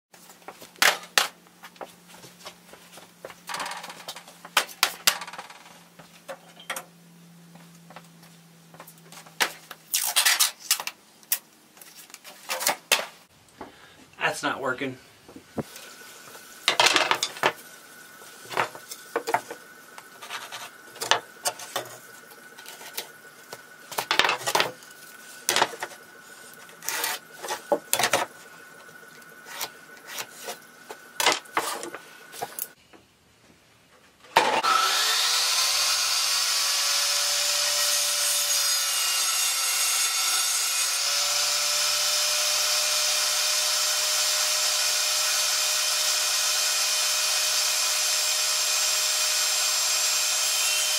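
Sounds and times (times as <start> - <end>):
table saw cutting plywood: 16.7 - 17.6, 18.4 - 23.3, 23.9 - 28.4, 29.3 - 32.7, 34.4 - 50.9
plywood scraps clattering: 23.9 - 24.8.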